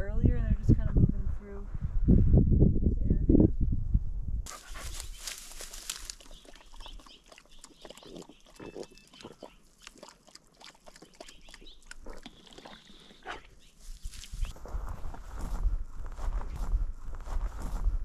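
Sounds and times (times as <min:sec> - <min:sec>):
dog sniffing: 0:04.5 - 0:06.6
dry grass rustling: 0:04.5 - 0:06.8, 0:13.6 - 0:17.8.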